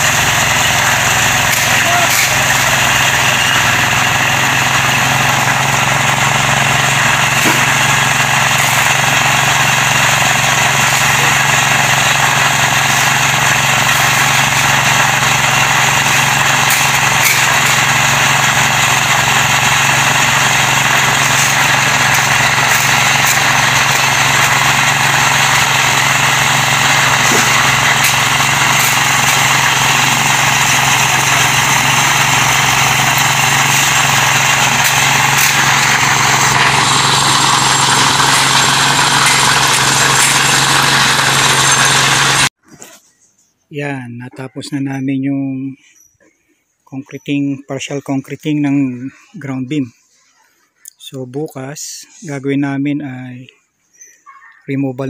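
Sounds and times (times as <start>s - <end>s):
concrete mixer engine running: 0.0s - 42.6s.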